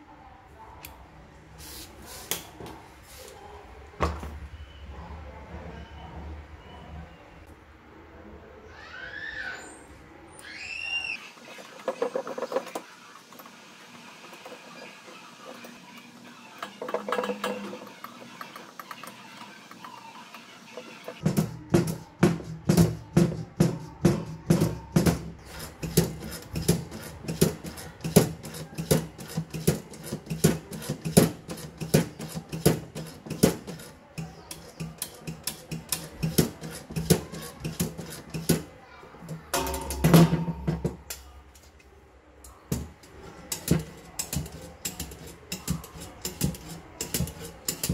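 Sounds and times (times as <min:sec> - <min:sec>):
background music with drum beat: 0:21.1 - 0:33.8.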